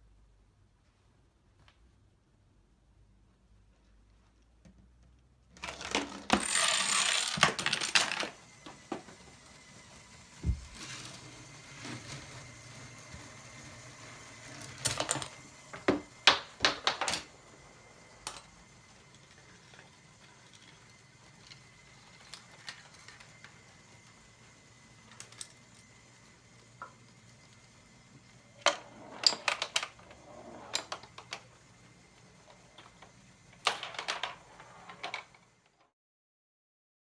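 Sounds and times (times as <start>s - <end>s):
toy parts clicking and knocking: 5.5s - 10.1s, 13.0s - 17.4s, 18.2s - 24.2s, 25.0s - 25.9s, 28.6s - 31.6s, 32.4s - 35.8s
balls rolling along plastic track: 5.5s - 35.9s.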